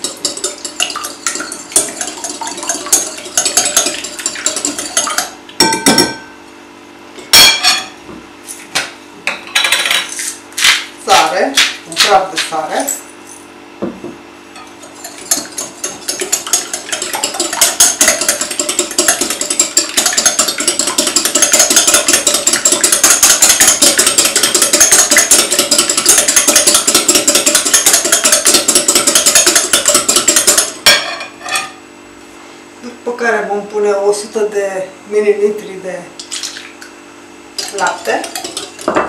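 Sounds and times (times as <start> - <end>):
whisk clicking against glass bowl: 0.0 - 6.1, 14.6 - 30.8, 37.6 - 38.9.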